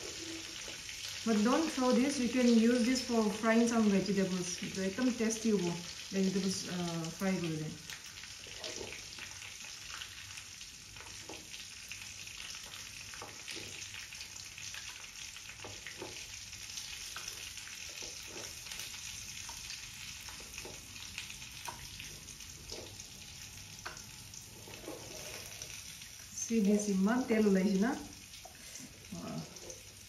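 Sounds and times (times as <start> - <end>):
pork sizzling in oil: 0.0 - 30.0
ladle tapping and scraping: 23.8 - 25.6.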